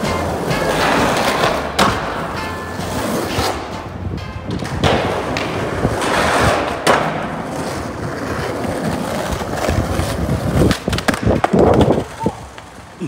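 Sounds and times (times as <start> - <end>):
skateboard clacking on ground: 0.0 - 13.0
skateboard rolling on stone: 0.0 - 13.0
sharp crack: 10.6 - 11.9.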